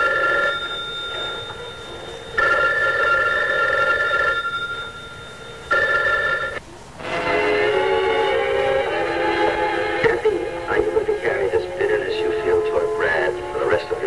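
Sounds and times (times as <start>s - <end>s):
telephone bell ringing: 0.0s - 8.4s.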